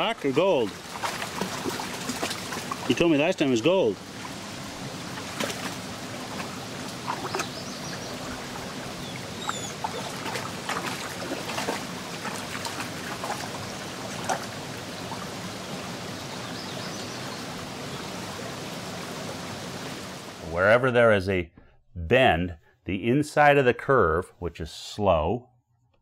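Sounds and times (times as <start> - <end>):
dog splashing in water: 0.0 - 3.4, 4.0 - 15.3
creek running over gravel: 0.0 - 20.5.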